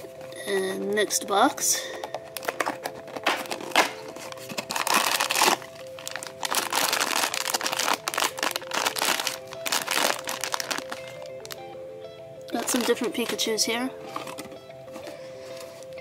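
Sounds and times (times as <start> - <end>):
background music: 0.0 - 16.0
plastic bag crinkling: 1.0 - 11.6, 12.5 - 16.0
cardboard box tearing open: 2.4 - 11.0.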